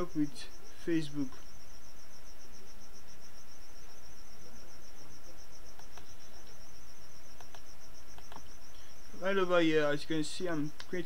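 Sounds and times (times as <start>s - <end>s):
insect trilling: 0.0s - 11.0s
low background hum: 0.0s - 11.0s
faint clicks: 5.7s - 6.2s, 7.4s - 8.8s.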